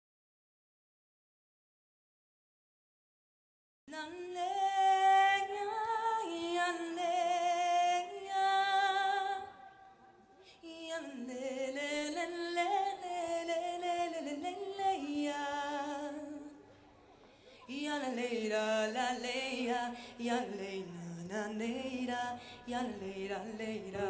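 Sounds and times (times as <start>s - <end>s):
woman singing with vibrato: 3.9s - 9.9s, 10.6s - 16.7s, 17.7s - 24.0s.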